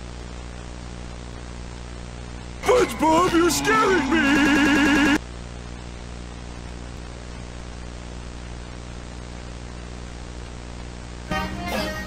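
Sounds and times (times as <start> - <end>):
low electrical hum: 0.0 - 12.0
music: 11.3 - 12.0.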